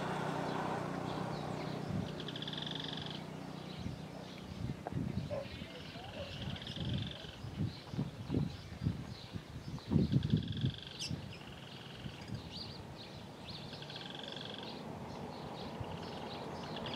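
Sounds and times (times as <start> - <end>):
bird singing trilled phrases: 0.0 - 16.9.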